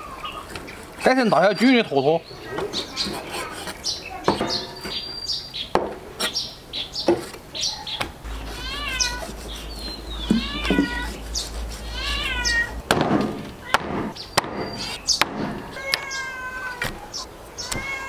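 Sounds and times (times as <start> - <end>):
high wavering animal calls: 0.0 - 1.7, 6.2 - 12.8, 14.7 - 18.0
bird chirps: 1.4 - 11.6, 14.1 - 15.3.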